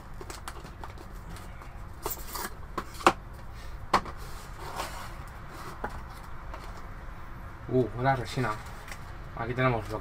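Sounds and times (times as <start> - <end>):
cardboard rubbing and sliding: 4.2 - 6.8.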